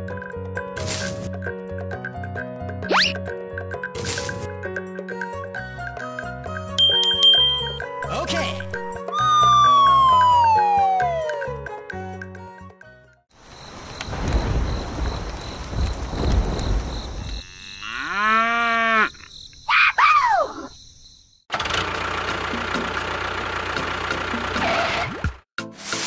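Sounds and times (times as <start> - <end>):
cow mooing: 17.4 - 19.1.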